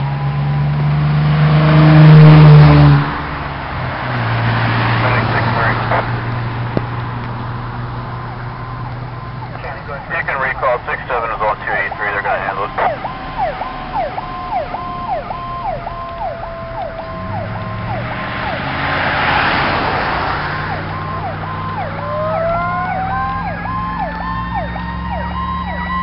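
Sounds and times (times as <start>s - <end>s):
diesel engine rumble: 0.0s - 26.0s
passing vehicle rush: 0.0s - 26.0s
gliding siren wail: 8.2s - 26.0s
electronic siren cycling: 12.9s - 18.7s, 20.6s - 26.0s.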